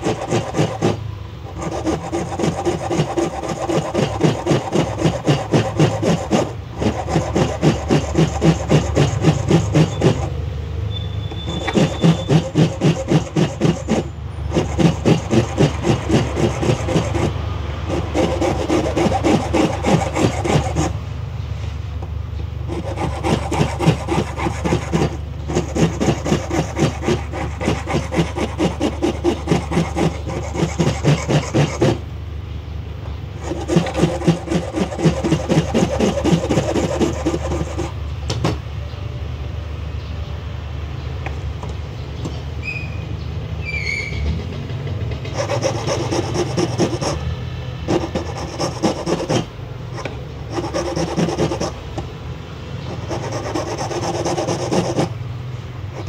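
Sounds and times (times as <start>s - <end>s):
hand file rasping on plastic: 0.0s - 10.3s, 11.5s - 21.0s, 22.7s - 32.0s, 33.4s - 38.0s, 45.3s - 51.8s, 52.8s - 55.1s.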